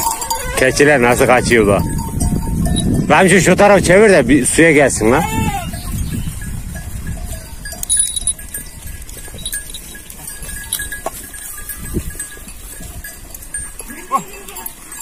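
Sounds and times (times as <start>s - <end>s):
livestock bells clinking: 0.0s - 15.0s.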